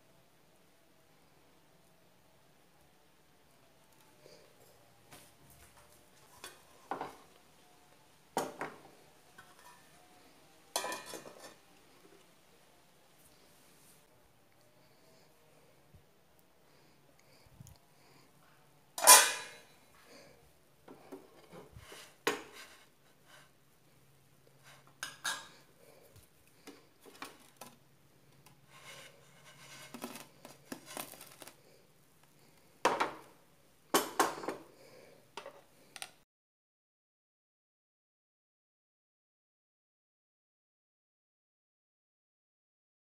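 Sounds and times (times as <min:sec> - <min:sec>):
cookware clattering: 0:10.7 - 0:11.6, 0:19.0 - 0:19.7, 0:25.0 - 0:25.6.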